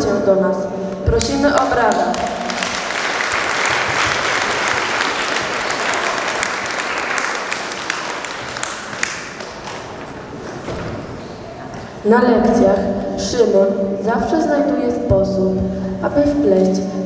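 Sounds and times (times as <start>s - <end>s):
audience applause: 1.9s - 10.4s.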